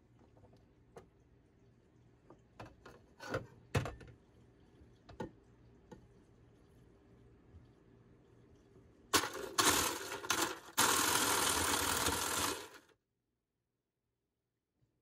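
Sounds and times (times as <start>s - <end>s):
ice shaving machine running: 9.1s - 12.9s.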